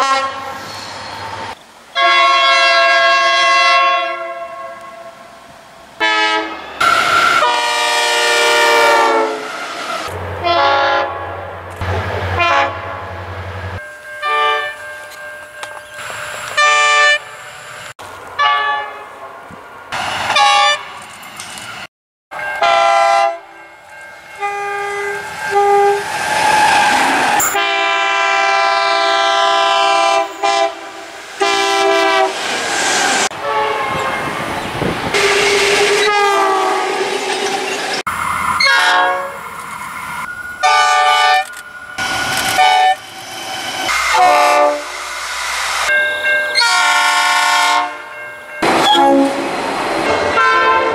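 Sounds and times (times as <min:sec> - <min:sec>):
locomotive horn blasts: 0:00.0 - 0:00.6, 0:02.0 - 0:05.2, 0:06.0 - 0:11.3, 0:12.3 - 0:13.2, 0:14.2 - 0:14.8, 0:16.6 - 0:17.3, 0:18.4 - 0:19.1, 0:20.4 - 0:20.9, 0:22.6 - 0:23.6, 0:24.3 - 0:26.1, 0:27.3 - 0:32.4, 0:33.3 - 0:34.3, 0:35.1 - 0:37.3, 0:38.6 - 0:39.4, 0:40.6 - 0:41.5, 0:42.5 - 0:43.0, 0:43.9 - 0:45.0, 0:46.5 - 0:49.5, 0:50.1 - 0:50.9
train running noise: 0:04.2 - 0:50.9.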